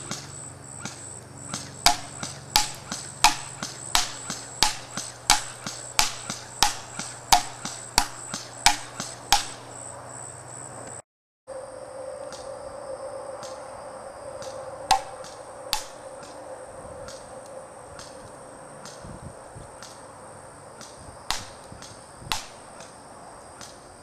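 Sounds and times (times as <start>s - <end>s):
airsoft rifle shots: 0.0s - 9.7s, 20.8s - 23.0s
high insect buzz: 0.0s - 24.0s.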